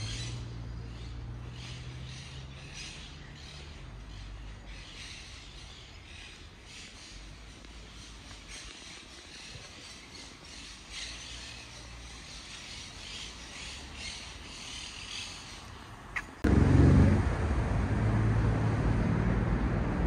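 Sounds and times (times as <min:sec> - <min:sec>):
road traffic: 0:00.0 - 0:20.0
vehicle engine rumbling: 0:15.5 - 0:20.0
low hum: 0:16.4 - 0:20.0.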